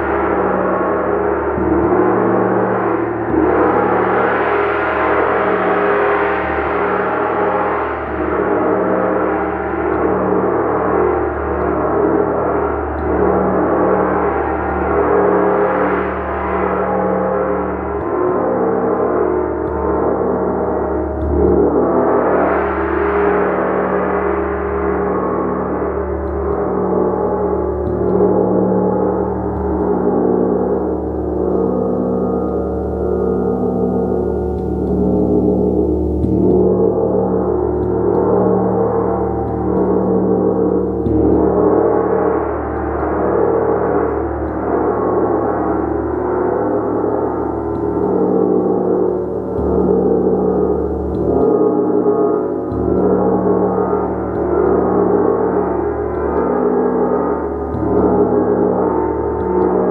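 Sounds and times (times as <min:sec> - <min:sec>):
gong ringing: 0:27.2 - 0:59.9.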